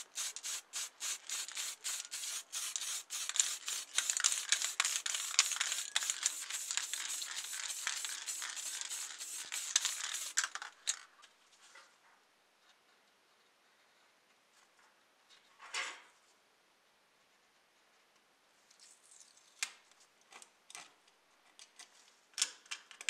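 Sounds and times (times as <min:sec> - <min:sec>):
spray paint can hissing: 0:00.0 - 0:10.5.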